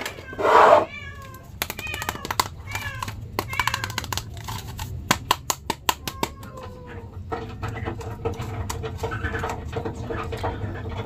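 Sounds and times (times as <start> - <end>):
action figure plastic clicks: 1.6 - 6.4.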